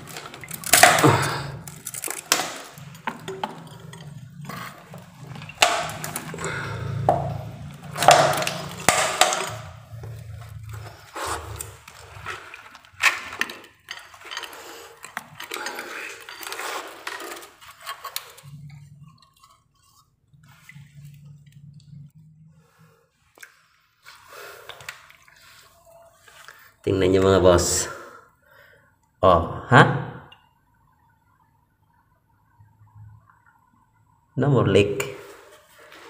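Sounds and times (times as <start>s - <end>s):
water splashing and sloshing: 0.0s - 26.8s.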